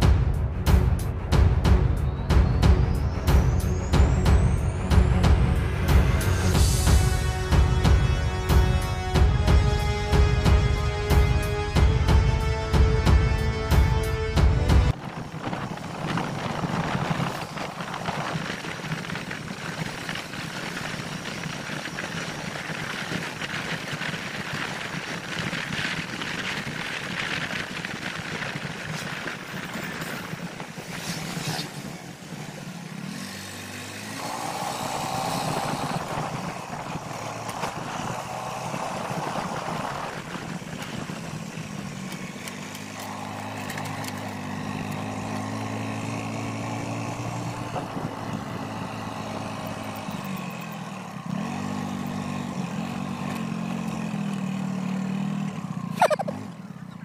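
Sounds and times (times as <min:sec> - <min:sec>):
motorcycle engine hum: 0:00.0 - 0:57.0
road noise: 0:00.0 - 0:57.0
wind: 0:00.0 - 0:57.0.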